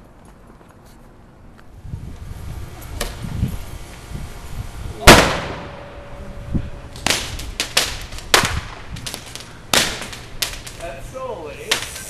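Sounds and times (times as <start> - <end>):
firecrackers cracking: 2.6 - 12.0
firecracker bang with echo: 5.0 - 5.9, 7.0 - 10.7.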